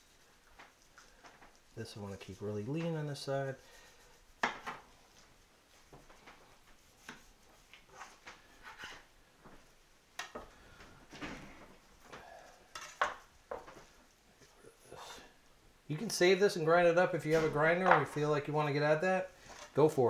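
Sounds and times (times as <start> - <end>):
knife scraping on cutting board: 7.9 - 9.1.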